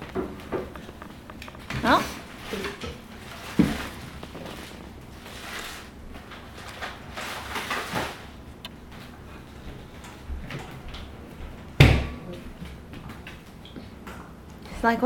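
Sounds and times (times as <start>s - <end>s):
puppy paws clicking on wood floor: 0.0s - 5.4s.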